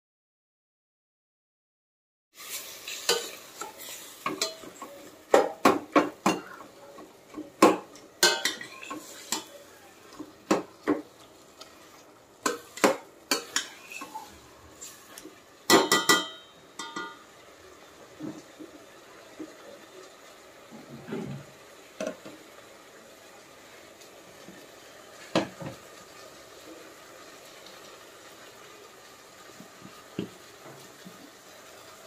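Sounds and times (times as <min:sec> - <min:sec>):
faint sizzle: 0:02.4 - 0:32.0
metal spoon clanking in pot: 0:03.1 - 0:06.4, 0:07.6 - 0:09.5, 0:15.7 - 0:17.2.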